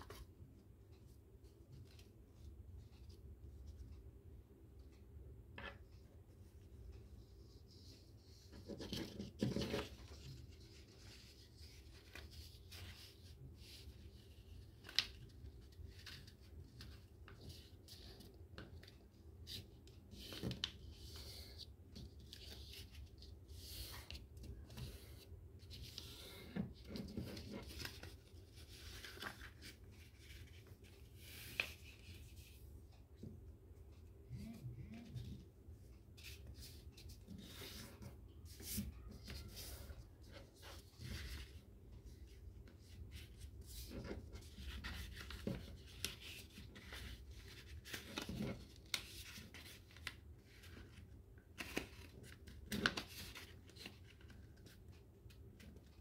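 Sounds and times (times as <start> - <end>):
paper rustling and crinkling: 8.5 - 32.3, 36.2 - 56.0
faint low hum: 20.7 - 45.4.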